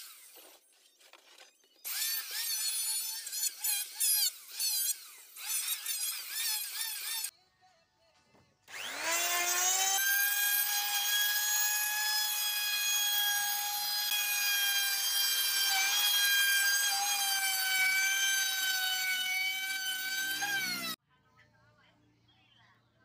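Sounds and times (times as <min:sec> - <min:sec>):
electric router cutting wood: 0:08.7 - 0:21.0.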